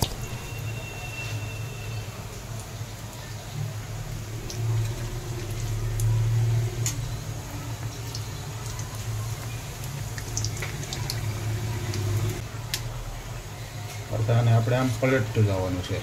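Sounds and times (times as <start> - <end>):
oil sizzling deep-frying: 0.0 - 16.0
spattering oil pops: 12.7 - 12.9.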